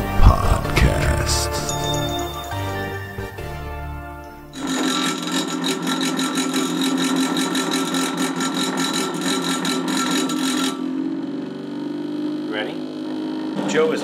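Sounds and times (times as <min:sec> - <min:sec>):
cotton candy machine motor whirring: 0:04.5 - 0:10.9.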